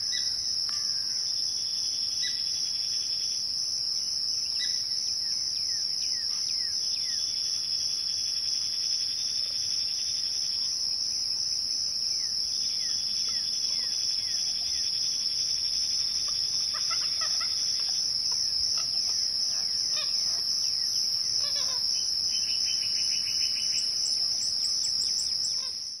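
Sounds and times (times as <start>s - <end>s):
insects chorus: 0.0s - 26.0s
songbirds calling: 16.0s - 25.8s.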